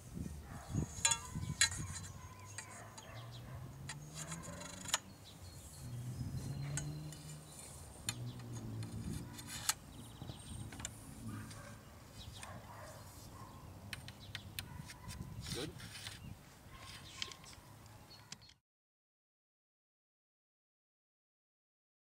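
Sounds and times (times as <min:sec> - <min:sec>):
metal poles clinking: 0:00.7 - 0:11.7.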